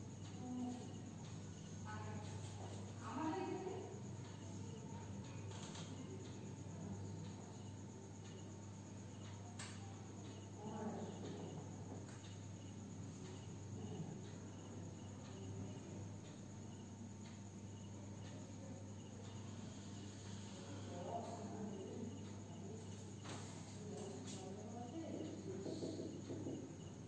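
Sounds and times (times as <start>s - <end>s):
insect chirping: 0.0s - 27.0s.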